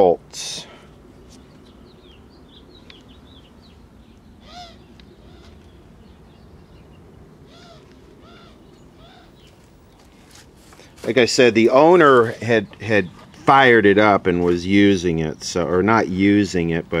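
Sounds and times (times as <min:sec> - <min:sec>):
low background hum: 0:00.0 - 0:17.0
hoot-like bird calls: 0:04.4 - 0:05.6, 0:07.5 - 0:09.5.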